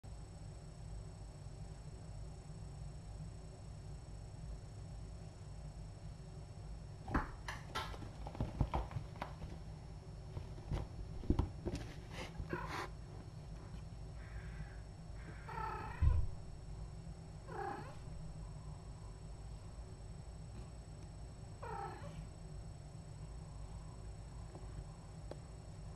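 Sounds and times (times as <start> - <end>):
light knocks and thumps: 10.4 - 12.1
cat meowing: 21.6 - 22.2.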